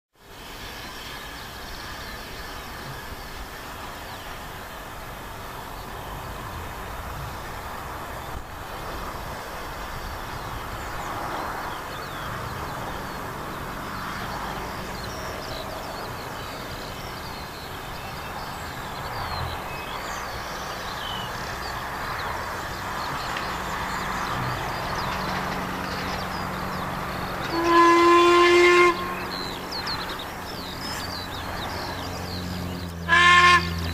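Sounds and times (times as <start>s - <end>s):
locomotive low rumble: 0.3s - 33.9s.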